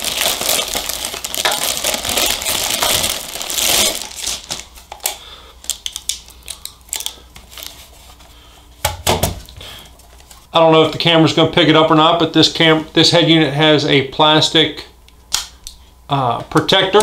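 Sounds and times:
plastic packaging crinkling: 0:00.0 - 0:08.2.

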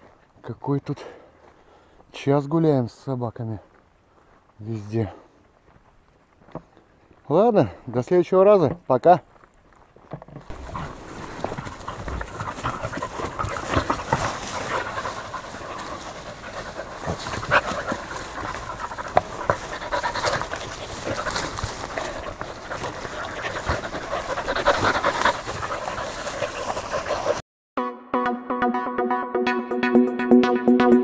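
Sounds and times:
dogs panting: 0:10.5 - 0:27.4
scuffling and rustling in grass: 0:10.5 - 0:27.4.

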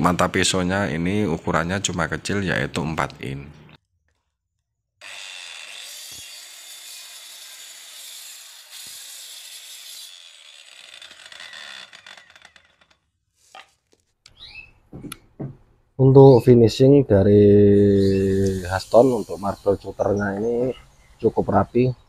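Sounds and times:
saw cutting wooden board: 0:05.0 - 0:13.1, 0:17.8 - 0:20.6
faint knocks: 0:14.9 - 0:15.7.

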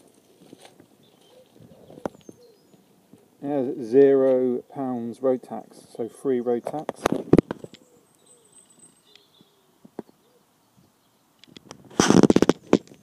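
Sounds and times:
pigeon cooing: 0:01.1 - 0:03.4, 0:07.6 - 0:08.6
rapid crackling noise: 0:11.5 - 0:13.0.

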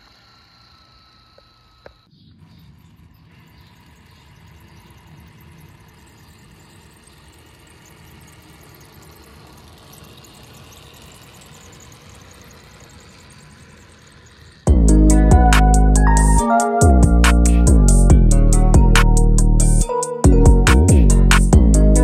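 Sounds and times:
rc truck motor whirring: 0:00.0 - 0:16.8.

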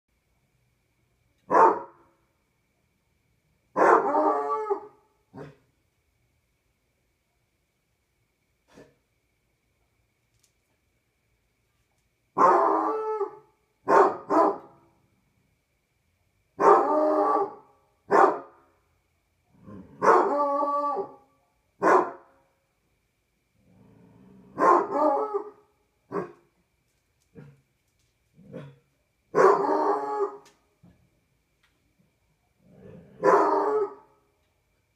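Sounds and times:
dog barking: 0:01.5 - 0:02.0, 0:03.8 - 0:05.6, 0:12.4 - 0:14.8, 0:16.6 - 0:18.6, 0:20.0 - 0:21.2, 0:21.8 - 0:22.3, 0:24.6 - 0:26.4, 0:28.5 - 0:30.4, 0:33.2 - 0:34.0
dog howling: 0:12.4 - 0:13.4, 0:20.0 - 0:21.2.

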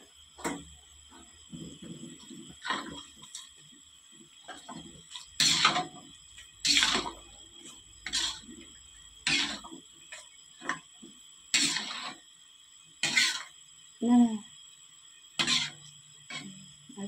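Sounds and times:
spatula scraping and sloshing in wok: 0:01.1 - 0:03.6, 0:04.4 - 0:10.8, 0:11.5 - 0:12.3, 0:13.0 - 0:13.7, 0:15.4 - 0:16.8.

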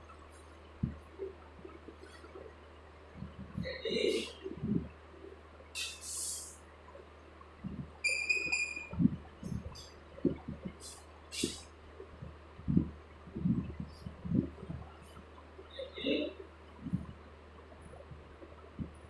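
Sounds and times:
high squeaky chirp: 0:08.0 - 0:09.0.

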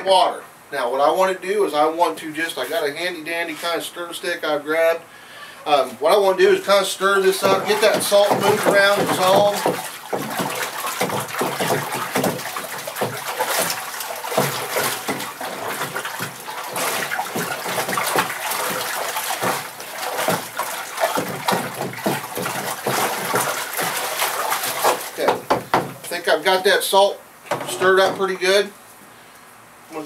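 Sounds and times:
water sloshing in a bucket: 0:05.8 - 0:26.8, 0:27.5 - 0:28.7.

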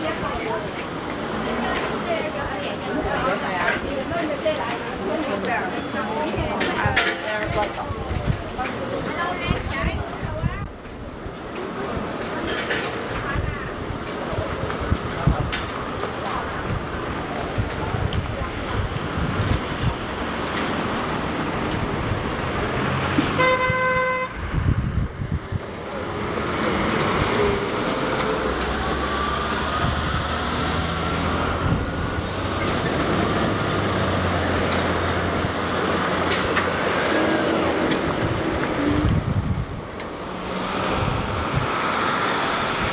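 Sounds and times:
city street traffic: 0:00.0 - 0:42.9
vehicle horn honking: 0:23.4 - 0:24.4
truck engine drone: 0:25.8 - 0:42.9.

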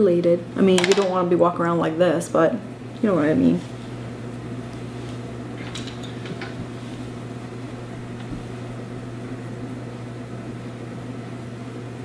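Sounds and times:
low electrical hum: 0:00.0 - 0:12.0
soft rustles: 0:03.4 - 0:04.0, 0:04.7 - 0:07.2.

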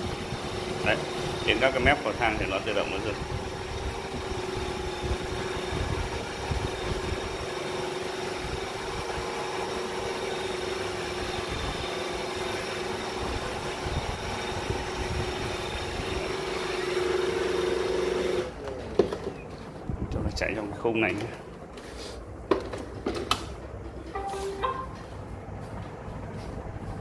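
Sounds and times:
robot vacuum running: 0:00.0 - 0:19.4.

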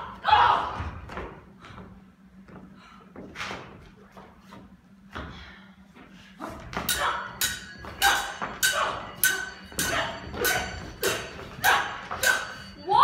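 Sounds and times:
rapier blades clashing: 0:06.7 - 0:13.0.

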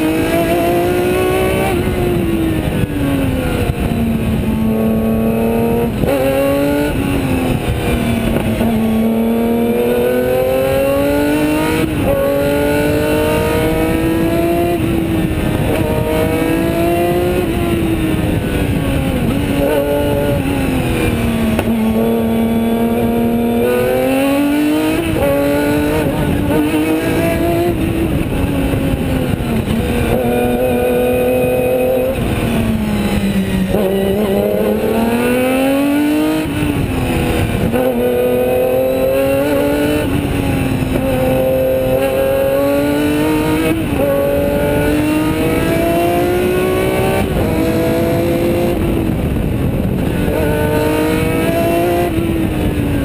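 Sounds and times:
racing car engine revving: 0:00.0 - 0:53.0
road noise: 0:00.0 - 0:53.0
wind noise: 0:00.0 - 0:53.0.

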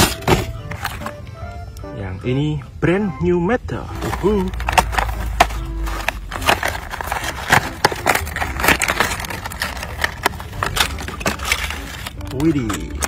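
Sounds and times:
cardboard tearing: 0:00.0 - 0:01.1, 0:04.0 - 0:13.0
plastic blister packaging crackling: 0:00.0 - 0:01.1, 0:03.9 - 0:13.0.

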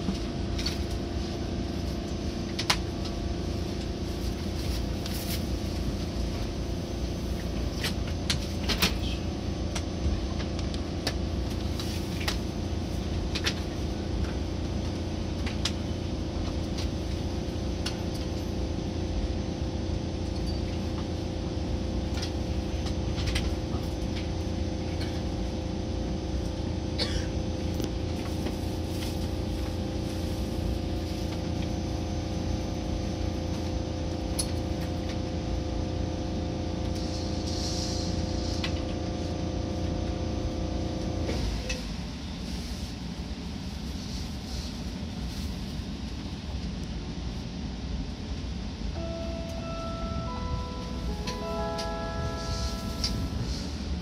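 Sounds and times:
low train rumble: 0:00.0 - 0:54.0
steady motor tones: 0:49.0 - 0:54.0.

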